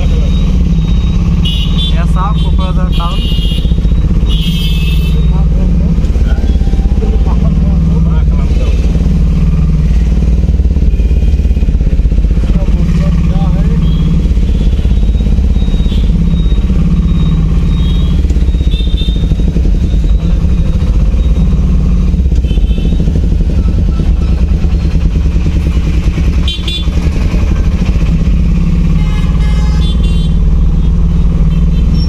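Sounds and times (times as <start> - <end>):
short high-pitched beeps: 0.0 - 2.0, 13.8 - 21.8
vehicle engine and road noise: 0.0 - 32.0.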